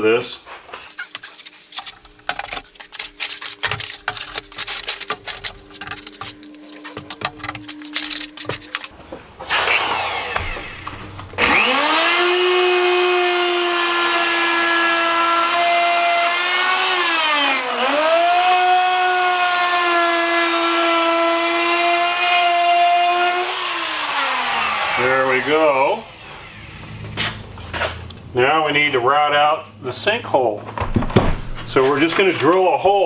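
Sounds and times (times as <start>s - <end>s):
handling rattles: 0.9s - 9.2s
router high whine: 9.5s - 19.7s, 23.0s - 27.2s.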